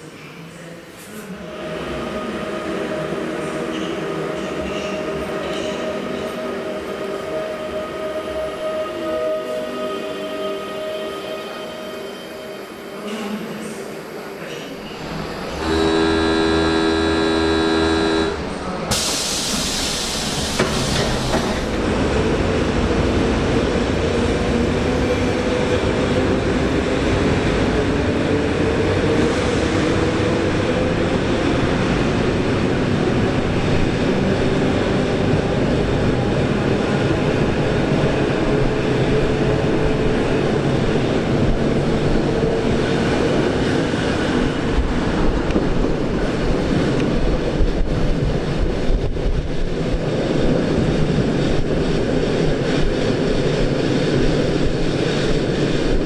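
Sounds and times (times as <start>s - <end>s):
train running with motor whine: 13.6s - 28.5s
train horn chord: 15.5s - 18.5s
air hiss: 18.9s - 21.7s.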